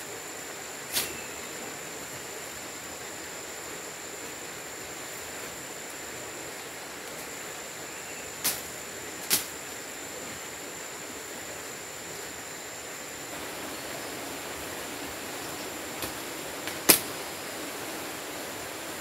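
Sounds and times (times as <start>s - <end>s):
high-pitched insect whine: 0.0s - 19.0s
plant stems snapping: 16.0s - 17.1s.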